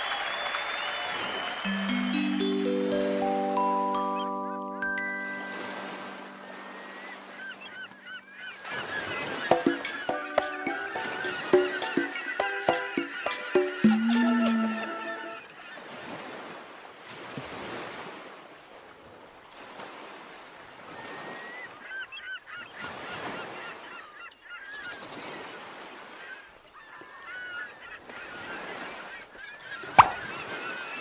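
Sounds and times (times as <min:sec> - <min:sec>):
ocean surf washing: 0:01.0 - 0:18.3, 0:29.8 - 0:31.0
birds calling: 0:01.6 - 0:15.9, 0:21.6 - 0:31.0.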